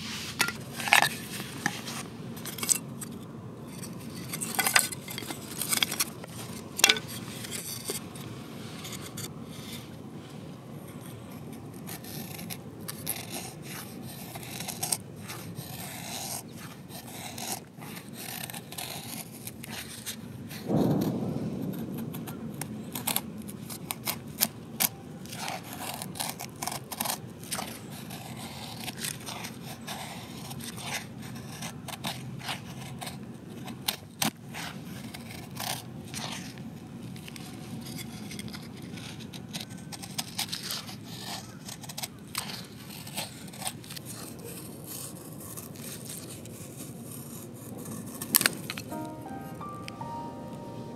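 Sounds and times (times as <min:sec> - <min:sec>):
knife scraping wood: 0:00.0 - 0:10.0, 0:10.8 - 0:21.1, 0:23.0 - 0:48.9.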